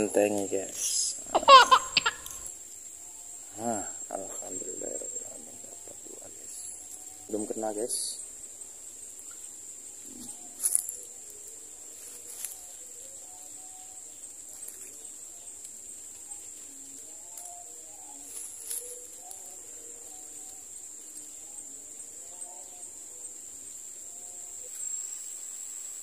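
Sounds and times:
high-pitched insect drone: 0.0 - 26.0.

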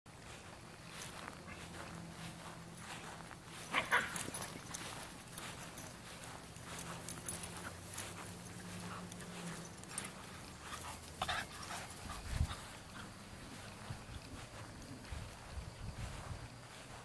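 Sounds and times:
small dogs playing: 0.2 - 16.9.

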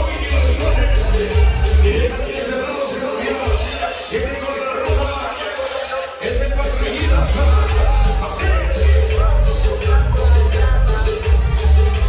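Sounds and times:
loud dance music with heavy bass: 0.0 - 12.0.

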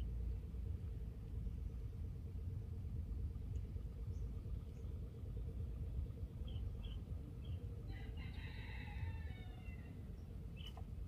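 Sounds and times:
low rumble: 0.0 - 11.0
rooster crowing: 7.8 - 10.0.

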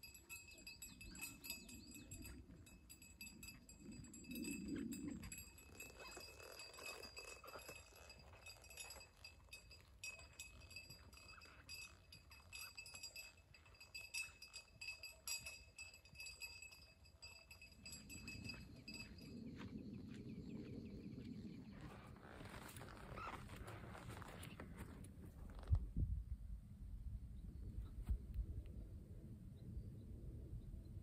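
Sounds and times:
cowbells clinking: 0.0 - 19.6.

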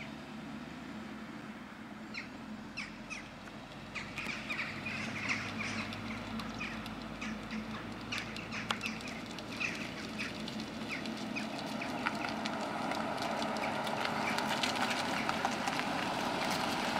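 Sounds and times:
car engine and tyres approaching: 0.0 - 16.9
birds calling: 2.0 - 12.5, 13.6 - 15.6.

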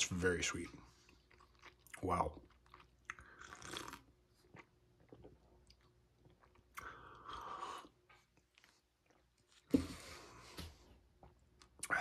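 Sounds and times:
person chewing: 1.0 - 9.7.

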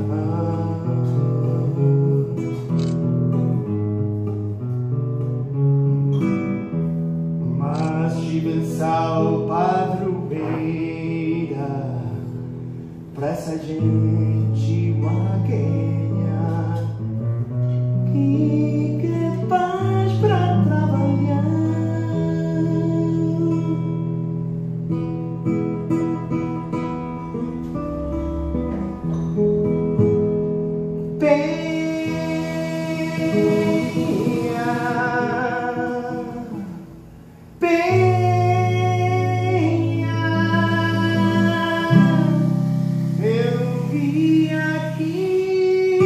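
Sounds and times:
man singing: 0.0 - 2.7, 7.5 - 24.2, 31.1 - 37.0, 37.6 - 46.0
acoustic guitar: 0.0 - 46.0.

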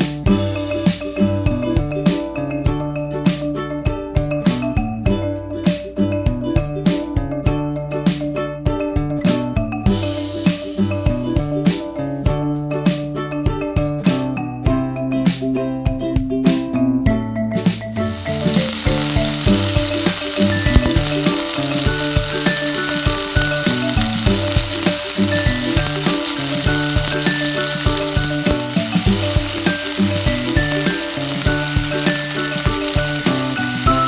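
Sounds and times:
steaks sizzling in a pan: 17.9 - 34.0.

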